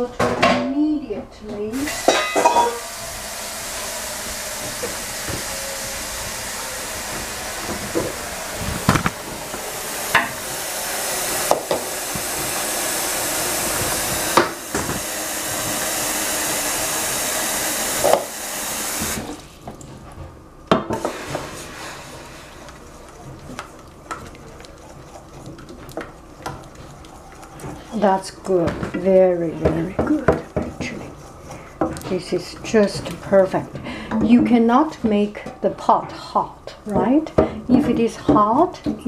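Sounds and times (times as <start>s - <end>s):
tap running into metal pot: 1.9s - 2.8s
saucepan and spoon clinking: 1.9s - 2.9s.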